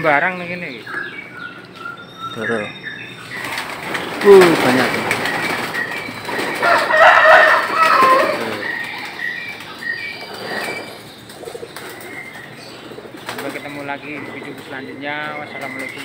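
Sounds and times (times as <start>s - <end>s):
doves flapping wings: 3.2s - 16.0s.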